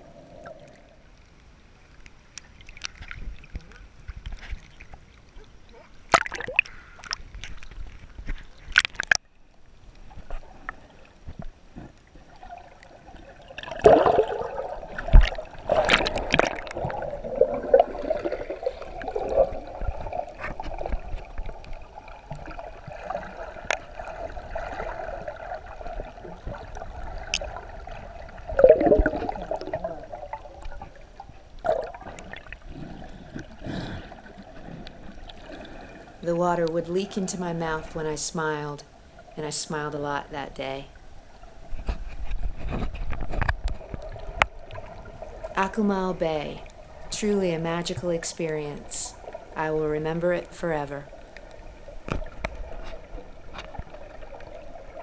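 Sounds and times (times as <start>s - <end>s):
underwater bubbles: 0.0s - 40.2s, 40.8s - 55.0s
water splashing: 2.3s - 9.4s, 10.0s - 55.0s.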